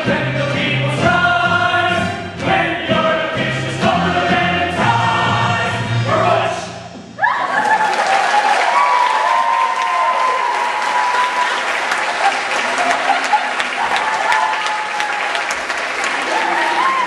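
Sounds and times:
audience applauding: 0:07.5 - 0:17.0.

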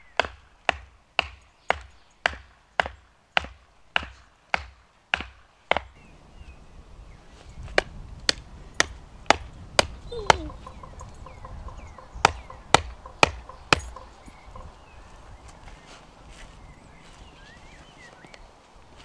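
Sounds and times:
wood being chopped: 0:00.1 - 0:06.0, 0:07.7 - 0:10.8, 0:12.2 - 0:14.2.

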